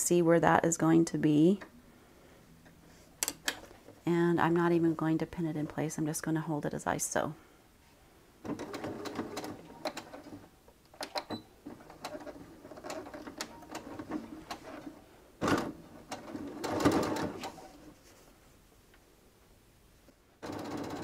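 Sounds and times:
sewing machine stitching: 8.4s - 10.4s, 11.0s - 17.8s, 20.4s - 21.0s.

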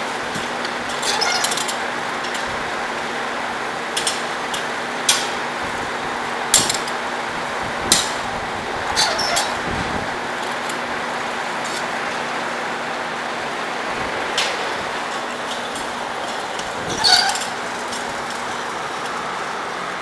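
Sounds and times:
low machine hum: 0.0s - 20.0s
metallic clanks of steel bars: 14.4s - 19.2s.

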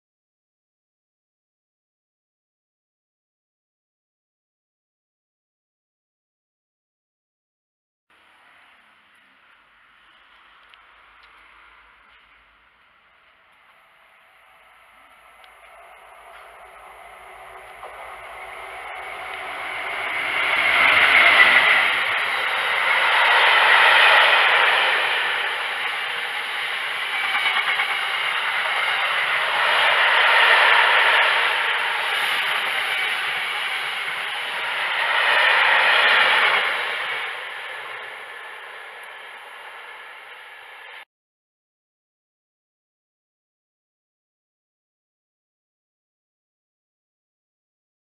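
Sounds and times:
diesel locomotive passing: 8.2s - 41.0s
train wheels clattering over rails: 15.0s - 40.6s.

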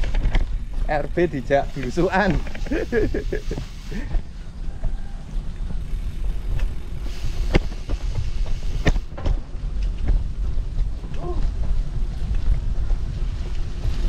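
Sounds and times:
bike jolting over bumps: 0.0s - 14.0s
tyres rolling on dirt path: 0.0s - 14.0s
wind rumbling on microphone: 0.0s - 14.0s.

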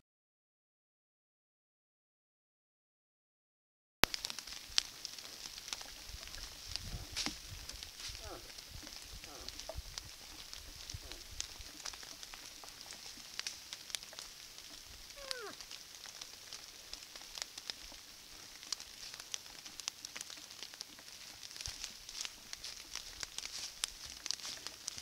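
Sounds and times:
crackles in dry leaves: 4.0s - 25.0s
steady hiss: 4.0s - 25.0s
moose call falling in pitch: 15.2s - 15.6s.

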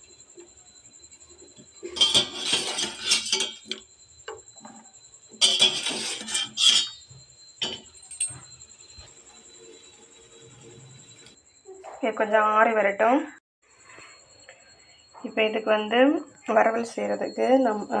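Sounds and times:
strainer scraping a steel pot: 1.8s - 3.8s, 5.4s - 7.8s.

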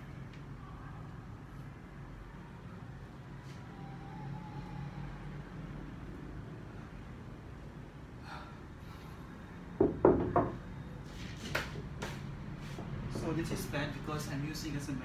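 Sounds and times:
dumbbells clunking on tiled floor: 9.8s - 10.6s.

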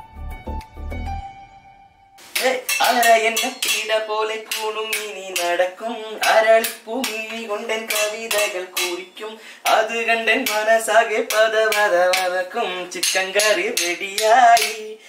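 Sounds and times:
metal clanks on stockpot: 2.7s - 3.9s.

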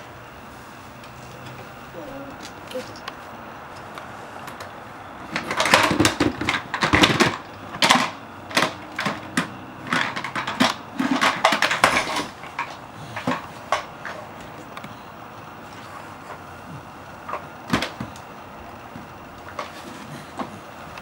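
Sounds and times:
plastic toys clattering: 4.5s - 14.8s, 17.2s - 20.8s.

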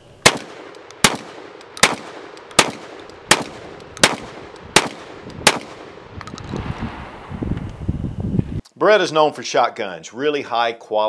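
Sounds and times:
shotgun shots with echo: 0.2s - 6.0s.

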